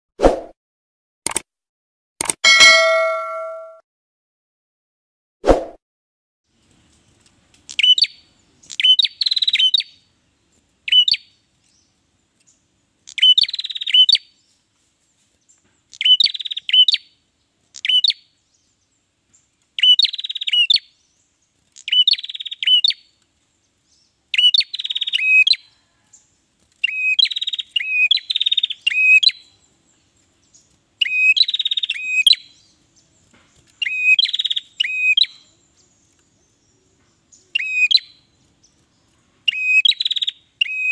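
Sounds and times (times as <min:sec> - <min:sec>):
bird singing trills and whistles: 0:07.7 - 0:10.0, 0:10.9 - 0:11.4, 0:13.1 - 0:14.3, 0:15.9 - 0:17.2, 0:17.8 - 0:18.3, 0:19.8 - 0:21.0, 0:21.8 - 0:23.1, 0:24.3 - 0:25.7, 0:26.8 - 0:29.6, 0:30.5 - 0:32.8, 0:33.8 - 0:38.3, 0:39.5 - 0:40.9.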